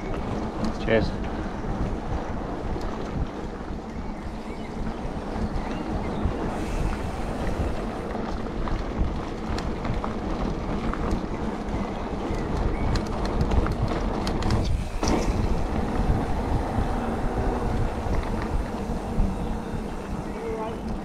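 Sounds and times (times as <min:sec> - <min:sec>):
bike tyres on gravel: 0:00.0 - 0:21.0
wind buffeting microphone: 0:00.0 - 0:21.0
small clicks and rattles: 0:08.1 - 0:15.8.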